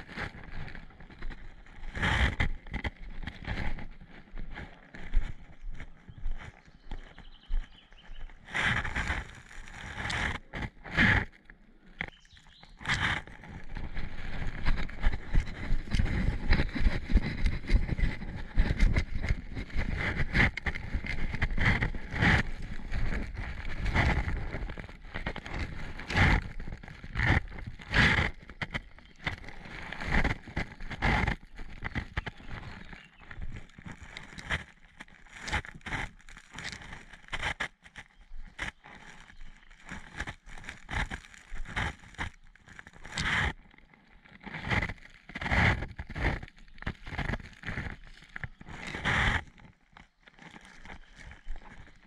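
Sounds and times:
footsteps crunching on gravel: 4.4s - 10.3s.

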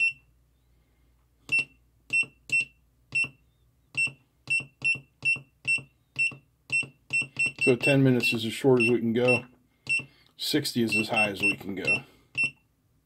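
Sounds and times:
short high-pitched beeps: 0.0s - 0.3s, 4.0s - 10.1s, 10.9s - 12.6s.

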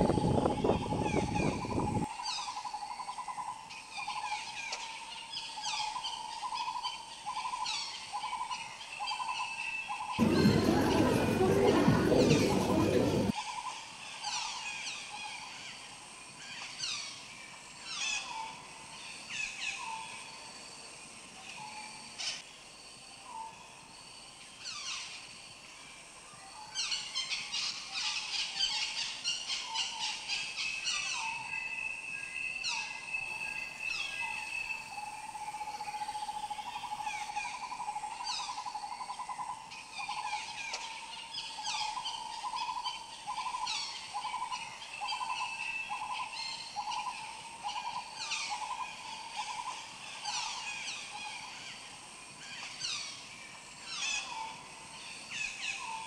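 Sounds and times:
birds chirping: 10.2s - 13.3s, 32.4s - 38.6s.

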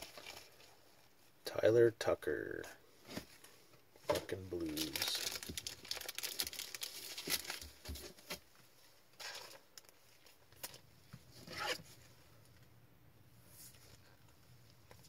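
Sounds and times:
plastic packaging crinkling: 0.0s - 0.8s, 4.6s - 8.4s.

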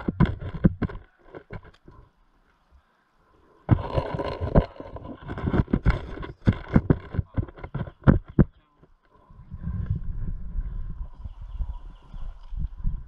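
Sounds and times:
gear rustling and knocking: 0.0s - 2.0s, 3.7s - 8.5s
footsteps on rough ground: 3.7s - 8.5s.

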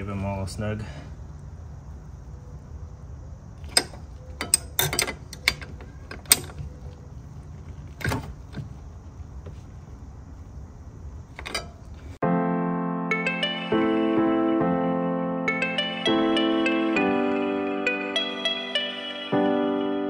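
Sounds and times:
piano music: 12.2s - 20.0s.

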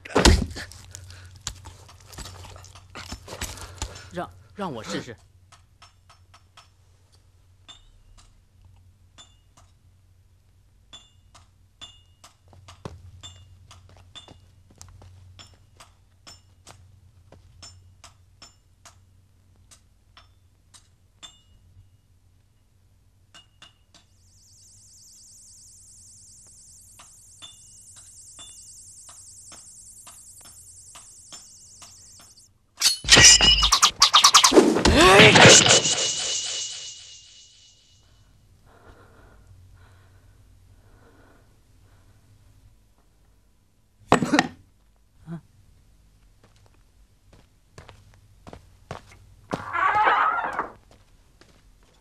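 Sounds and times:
light metallic clinks: 21.2s - 21.6s
steady high hiss: 24.2s - 32.4s, 33.8s - 38.0s
loud burst of noise: 33.2s - 37.7s.

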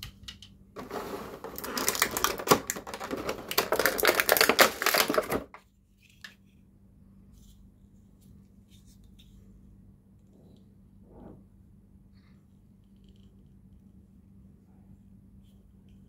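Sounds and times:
plastic packaging crackling: 0.8s - 5.6s.

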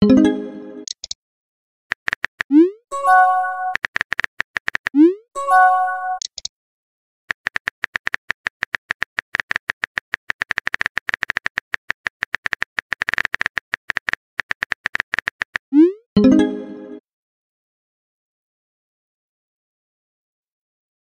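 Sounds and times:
phone keyboard typing clicks: 1.9s - 2.5s, 3.7s - 5.0s, 7.3s - 15.6s.

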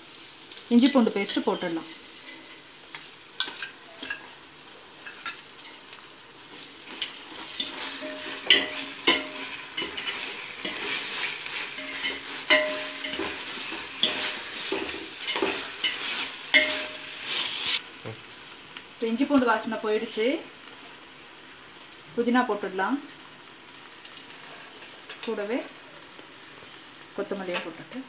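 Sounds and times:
onions frying sizzle: 0.0s - 28.0s
steel ladle scraping pot: 1.3s - 4.4s, 6.5s - 17.8s.

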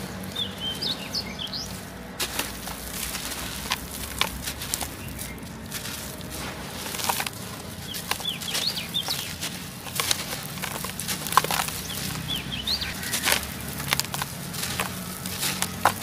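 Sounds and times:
bird chirping: 0.0s - 2.1s, 6.9s - 14.0s
dry soil crunching and crumbling: 0.0s - 16.0s.

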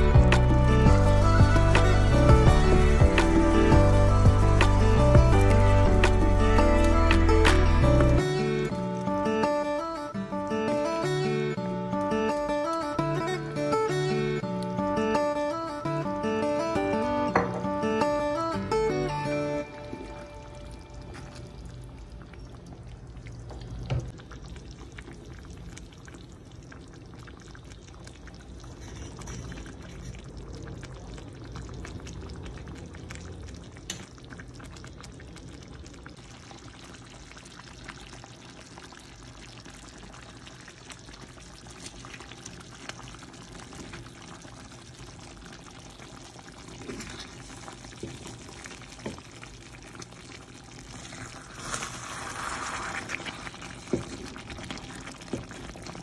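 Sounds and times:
thick sauce bubbling and crackling: 19.9s - 56.0s.

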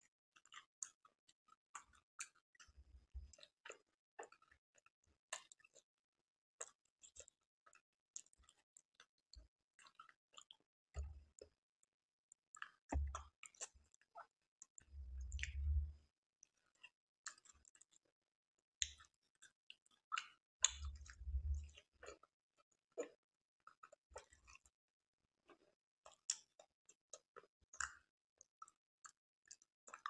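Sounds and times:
wet chewing with lip smacks: 1.8s - 2.7s, 3.3s - 5.8s, 6.6s - 9.1s, 9.8s - 11.5s, 12.5s - 15.7s, 16.8s - 18.0s, 18.8s - 22.3s, 23.0s - 24.7s, 25.5s - 30.0s
dull low thumps: 12.9s - 13.2s, 15.2s - 15.9s.

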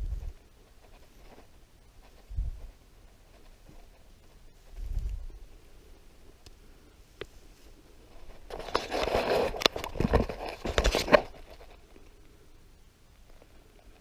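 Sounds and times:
camera handling rustling and scraping: 8.1s - 11.9s.

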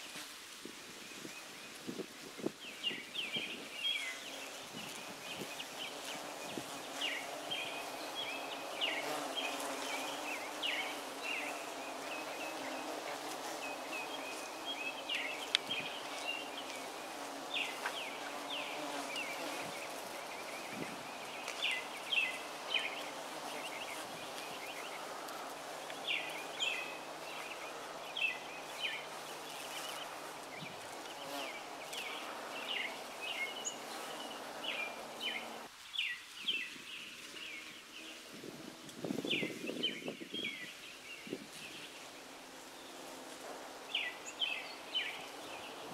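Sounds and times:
bird chirping: 1.2s - 25.1s, 43.9s - 45.9s
bees humming: 3.3s - 35.7s.

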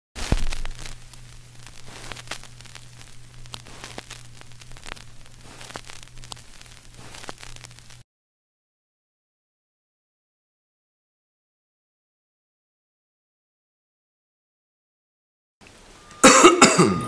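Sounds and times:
crackling static hiss: 0.2s - 8.0s, 15.6s - 17.0s
low hum: 0.2s - 8.0s.

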